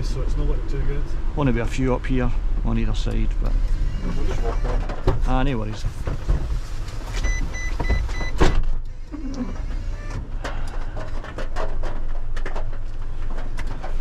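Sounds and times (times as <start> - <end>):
knocks and clatter: 4.6 - 8.9, 10.1 - 14.0
high electronic beeps: 7.2 - 8.4.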